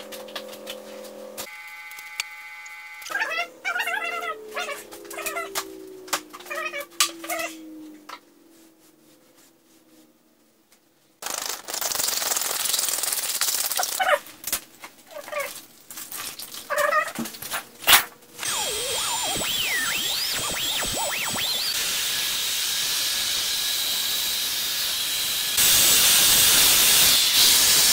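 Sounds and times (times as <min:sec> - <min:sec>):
hissing noise: 0:18.4 - 0:26.8.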